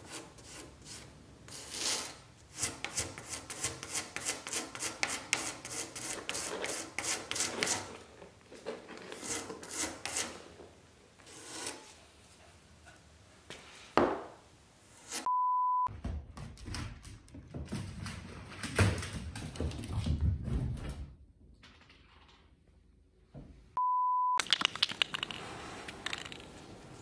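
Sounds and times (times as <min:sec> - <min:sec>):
electronic beep: 0:15.3 - 0:15.9, 0:23.8 - 0:24.4.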